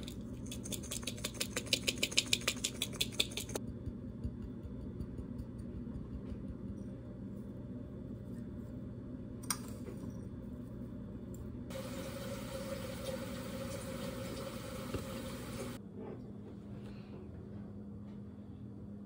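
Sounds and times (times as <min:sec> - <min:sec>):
spoon tapping ceramic bowl: 0:03.6 - 0:06.9
kitchen appliance humming: 0:11.3 - 0:15.8.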